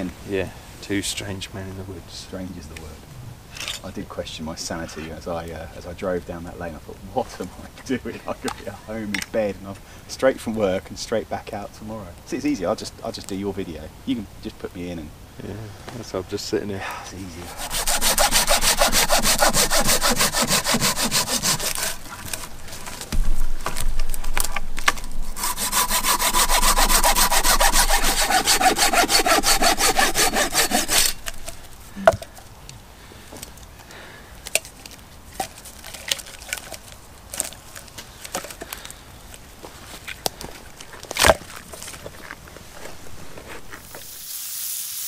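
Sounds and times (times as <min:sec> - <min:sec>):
hand saw cutting wood: 0:17.3 - 0:22.5, 0:25.2 - 0:31.6.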